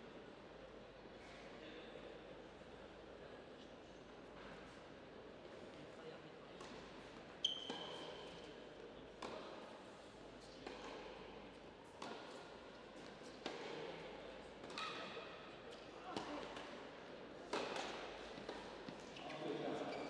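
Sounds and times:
shoe squeak: 0:07.4 - 0:08.2, 0:19.2 - 0:20.0.

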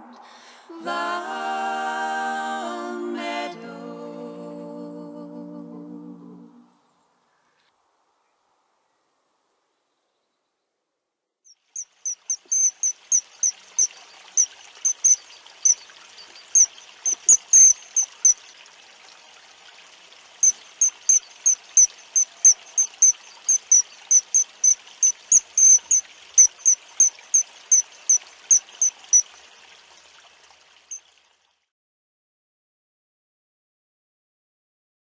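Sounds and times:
faint steady hiss: 0:00.0 - 0:31.7
small bird high chirps: 0:11.5 - 0:18.4, 0:20.4 - 0:29.3.

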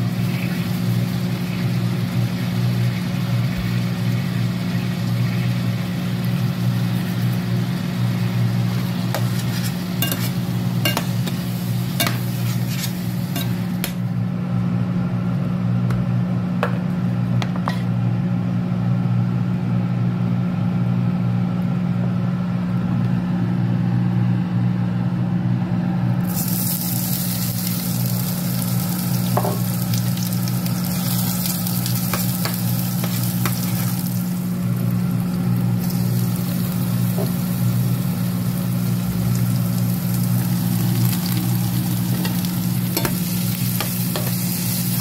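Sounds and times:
meat sizzling in a frying pan: 0:00.0 - 0:14.0, 0:26.2 - 0:45.0
steady low hum: 0:00.0 - 0:45.0
metal spoon scraping a pan: 0:09.1 - 0:14.0, 0:32.1 - 0:33.9, 0:43.8 - 0:44.8.

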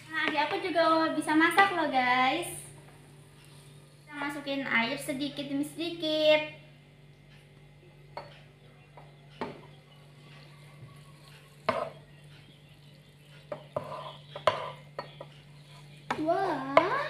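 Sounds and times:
steady low hum: 0:00.0 - 0:17.0
spatula scraping frying pan: 0:13.6 - 0:14.9.

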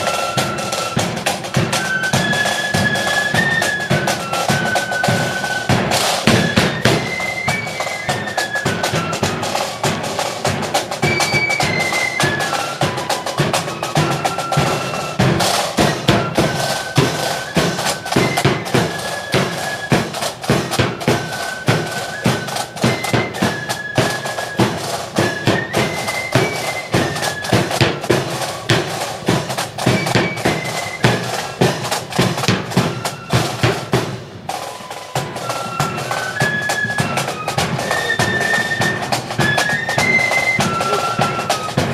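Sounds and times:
flutes playing melody: 0:00.0 - 0:41.9
marching snare and bass drums: 0:00.0 - 0:41.9.

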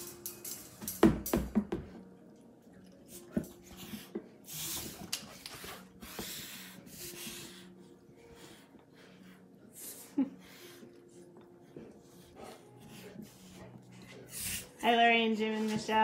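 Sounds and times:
dog breathing through nose: 0:03.6 - 0:14.8.

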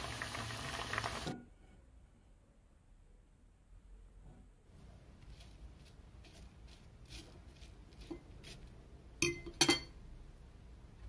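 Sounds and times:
dishes clinking: 0:09.2 - 0:10.0.

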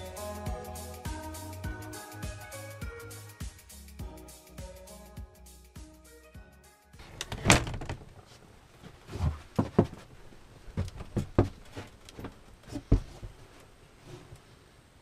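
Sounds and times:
knocks and thumps on wooden frame: 0:07.3 - 0:08.1, 0:09.1 - 0:10.1, 0:10.7 - 0:13.4.

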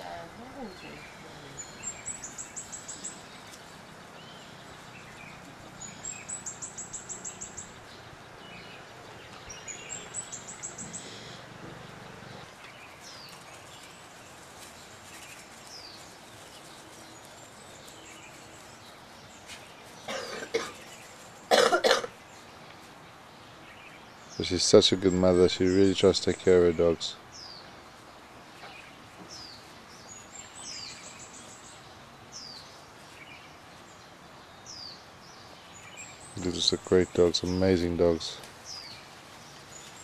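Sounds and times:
faint bird chirps: 0:00.0 - 0:14.2
songbird singing trill: 0:00.0 - 0:40.0.

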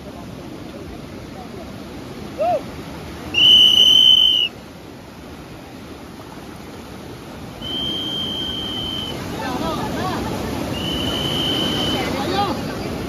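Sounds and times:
surf washing: 0:00.0 - 0:13.0
whistle blasts: 0:03.3 - 0:04.5, 0:07.6 - 0:09.3, 0:10.7 - 0:12.2.

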